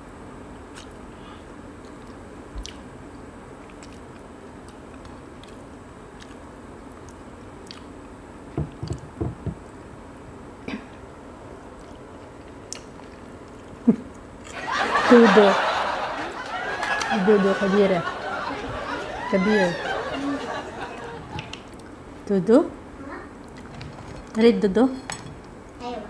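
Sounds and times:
steady background hiss: 0.0 - 26.0
chewing: 3.6 - 5.6, 6.2 - 7.9
dull knocks: 8.6 - 9.7.

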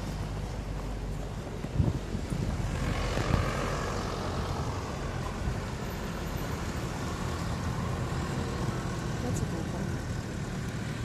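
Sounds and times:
vehicle engines driving slowly: 0.0 - 11.0
wind rumble on microphone: 0.2 - 5.8.

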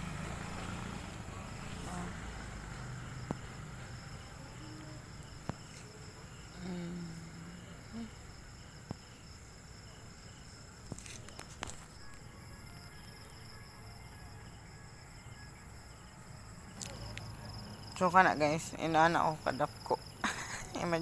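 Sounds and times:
night insects chirring: 0.0 - 21.0
faint voice: 4.3 - 8.2.

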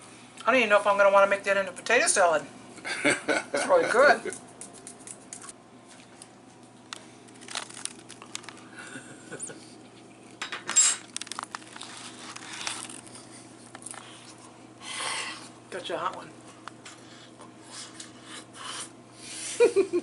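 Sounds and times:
man chewing: 4.4 - 8.9, 11.0 - 15.6, 16.8 - 19.0
small clicks and rustles: 4.7 - 8.7, 11.1 - 13.1.

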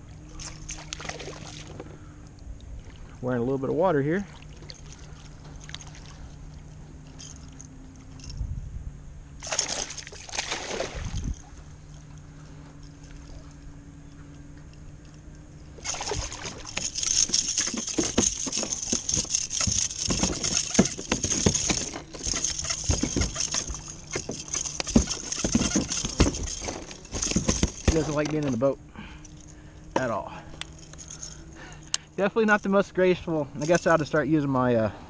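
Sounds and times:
fish splashing at the surface: 0.4 - 1.8, 9.4 - 11.3, 15.8 - 16.9
fish thrashing and knocking: 9.4 - 11.5, 15.8 - 28.6.

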